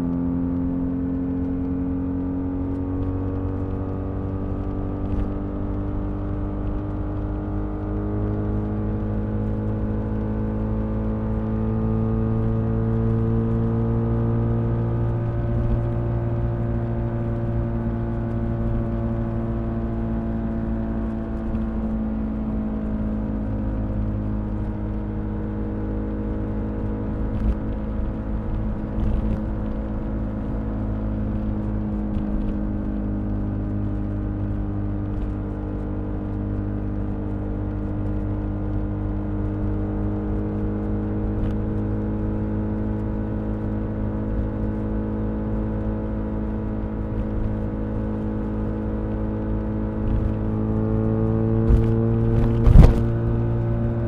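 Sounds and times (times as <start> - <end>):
road rumble: 0.0 - 54.0
wind: 0.0 - 54.0
motorcycle engine running: 11.9 - 54.0.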